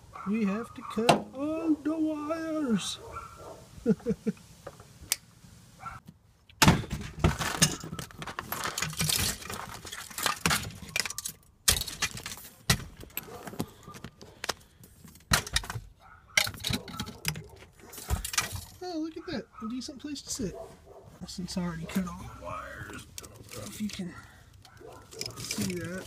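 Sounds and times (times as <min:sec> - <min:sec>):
rustling and jangling handling noise: 0:07.4 - 0:15.2, 0:16.4 - 0:18.8, 0:23.3 - 0:26.0.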